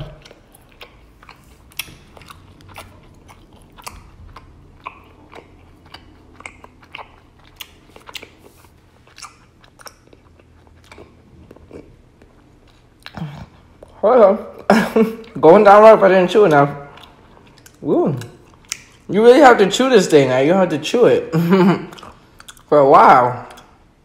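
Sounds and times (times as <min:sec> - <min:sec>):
wet chewing of honeycomb: 0:00.1 - 0:14.0.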